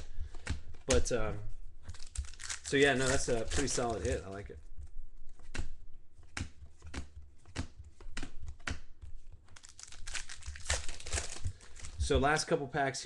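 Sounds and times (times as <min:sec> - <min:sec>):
trading cards clicking: 0:01.9 - 0:04.4, 0:05.3 - 0:12.0
wrappers rustling: 0:01.9 - 0:04.6, 0:09.5 - 0:12.1.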